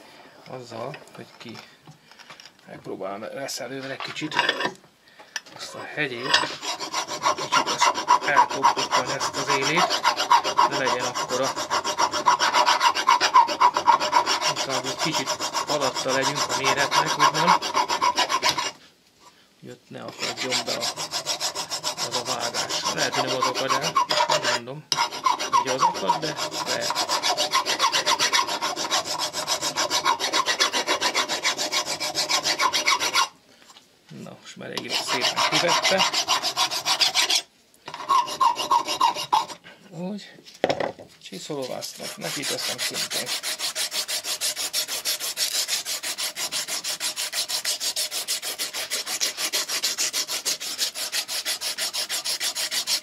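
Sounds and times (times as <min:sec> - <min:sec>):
hand file rasping on metal: 0:06.1 - 0:18.8, 0:20.1 - 0:33.3, 0:34.8 - 0:39.6, 0:41.6 - 0:53.0.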